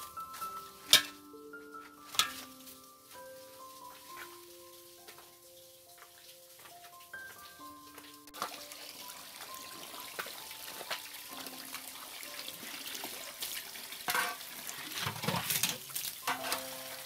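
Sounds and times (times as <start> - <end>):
water running into metal basin: 2.1 - 17.0
steel bowls clanking: 14.1 - 17.0.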